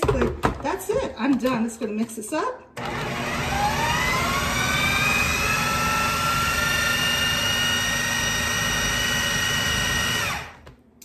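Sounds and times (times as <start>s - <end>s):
food processor motor whine: 2.8s - 10.7s.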